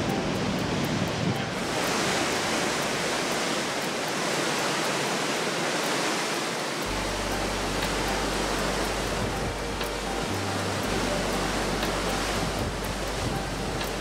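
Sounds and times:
wake water rushing: 0.0 - 14.0
low steady hum: 6.8 - 14.0.

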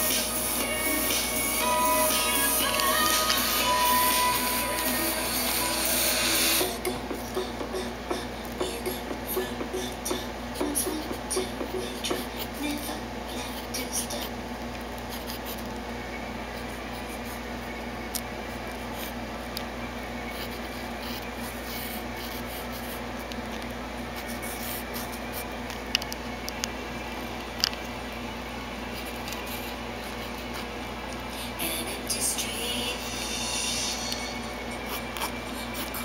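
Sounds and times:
low hum: 0.0 - 13.6, 22.2 - 36.0
pencil scratching on paper: 20.3 - 23.1, 24.2 - 25.5.

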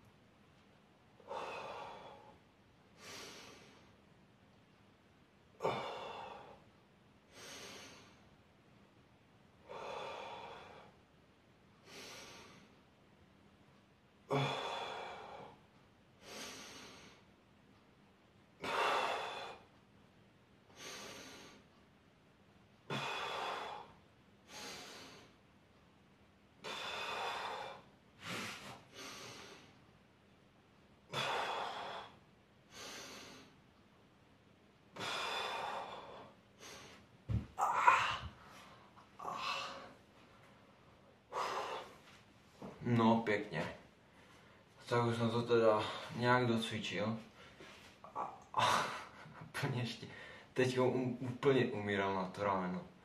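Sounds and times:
man breathing hard: 1.2 - 2.4, 9.6 - 11.0, 14.3 - 15.6, 18.6 - 19.8, 22.9 - 25.4, 26.6 - 29.8, 31.1 - 33.6, 35.0 - 37.1, 37.8 - 40.0, 41.2 - 42.2.

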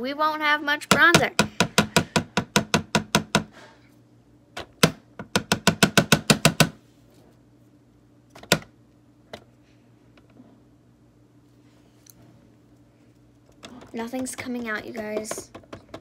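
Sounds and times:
rapid tapping of makeup container: 13.7 - 16.0.

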